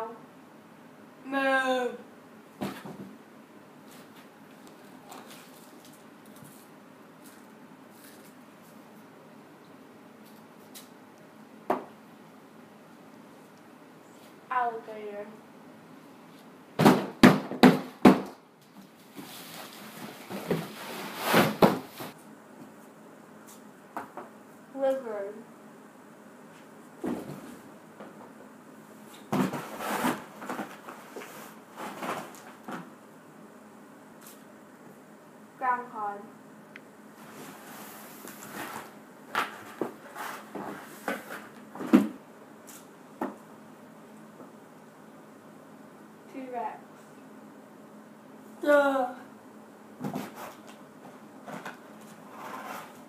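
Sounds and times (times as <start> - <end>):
tablecloth rustling: 37.1 - 41.6, 51.4 - 53.0.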